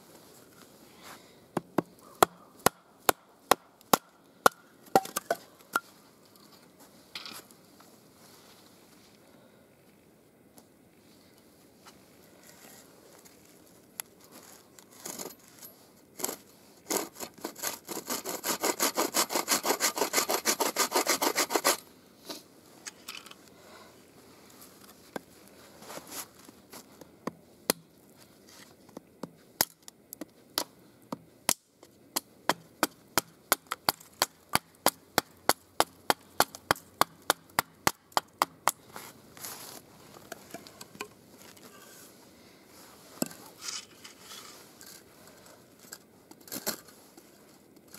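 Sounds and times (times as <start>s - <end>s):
bow saw cutting wood: 16.9s - 21.8s.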